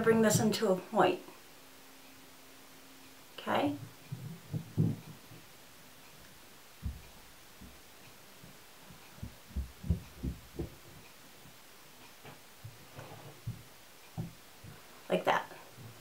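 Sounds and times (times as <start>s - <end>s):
faint low thumps: 3.6s - 15.0s.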